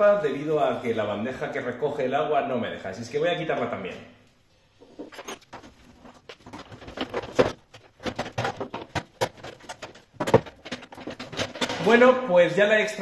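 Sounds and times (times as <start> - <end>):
plastic and metal parts rattling: 4.9 - 12.1.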